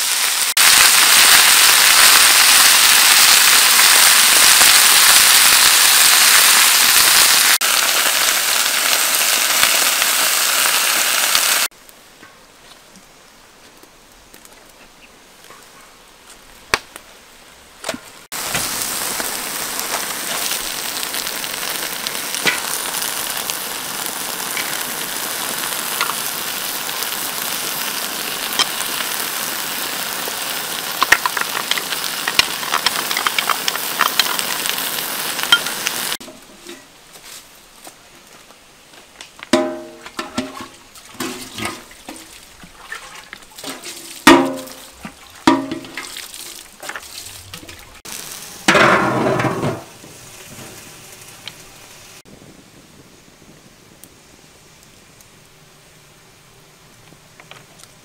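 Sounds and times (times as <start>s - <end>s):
sauce sizzling in a hot wok: 0.0s - 11.7s, 18.3s - 36.2s, 48.0s - 52.2s.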